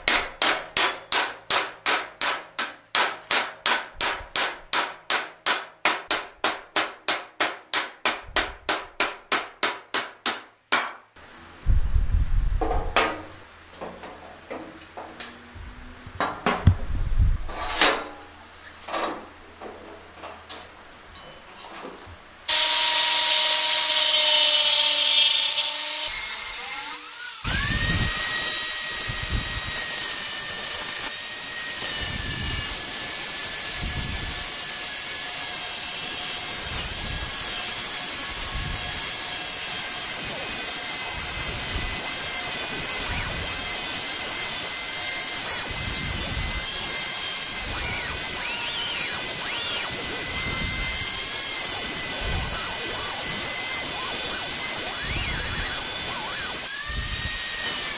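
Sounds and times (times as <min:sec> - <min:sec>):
angle grinder grinding steel: 0:22.5 - 0:57.9.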